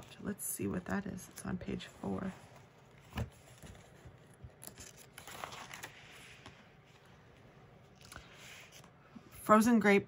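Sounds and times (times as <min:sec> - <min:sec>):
paper pages rustling: 0:01.1 - 0:09.0.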